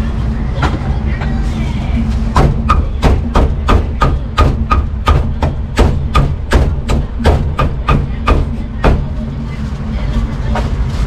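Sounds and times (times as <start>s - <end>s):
cleaver chopping meat on wood: 2.4s - 9.1s.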